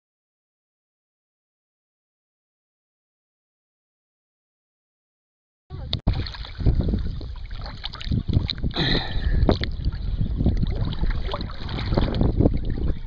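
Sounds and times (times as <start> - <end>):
wind buffeting microphone: 5.7 - 13.0
river water lapping and splashing: 5.8 - 13.0.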